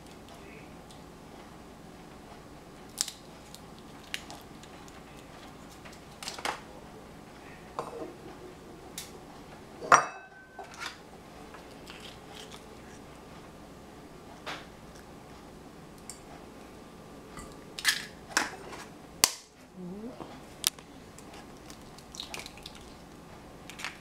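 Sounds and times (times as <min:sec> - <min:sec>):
dishes and utensils clinking: 0:09.8 - 0:11.0.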